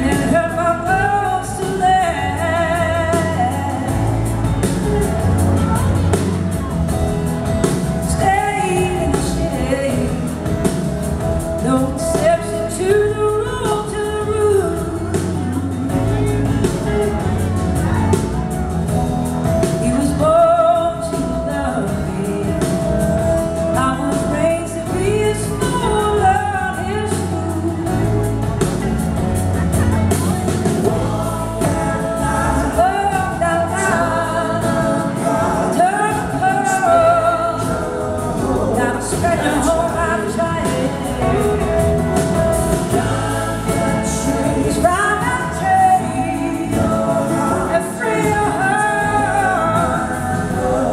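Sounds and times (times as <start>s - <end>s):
live rock band playing: 0.0s - 50.9s
woman singing lead: 0.0s - 50.9s.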